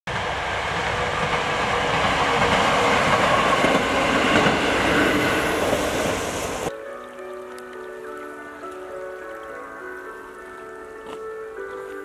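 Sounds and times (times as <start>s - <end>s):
diesel railcar rumbling past: 0.1s - 6.7s.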